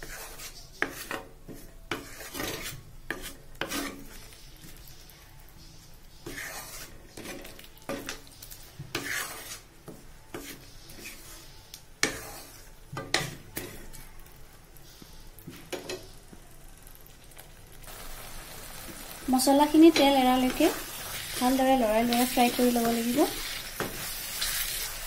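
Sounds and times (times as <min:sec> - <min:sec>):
spatula scraping a wok: 0:00.0 - 0:14.1, 0:17.9 - 0:25.0
paste sizzling in oil: 0:01.9 - 0:05.2, 0:05.8 - 0:12.8, 0:17.3 - 0:25.0.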